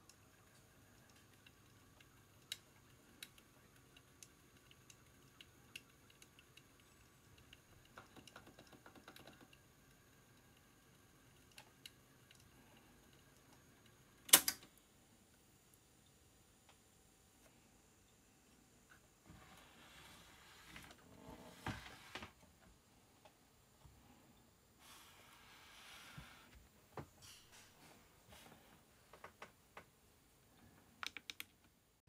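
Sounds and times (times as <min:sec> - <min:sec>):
cassette clicks in tape deck: 0:14.2 - 0:14.7.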